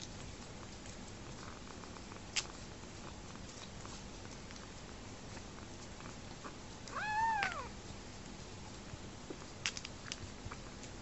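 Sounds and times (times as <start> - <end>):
kitten meowing: 6.9 - 7.7.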